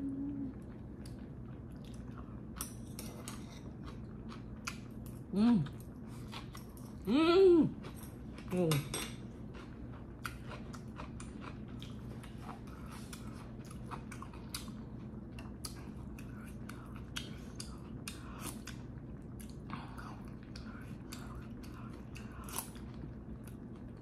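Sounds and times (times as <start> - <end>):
woman humming with enjoyment: 0.0 - 0.6, 7.1 - 7.8
chewing and mouth sounds: 0.3 - 24.0.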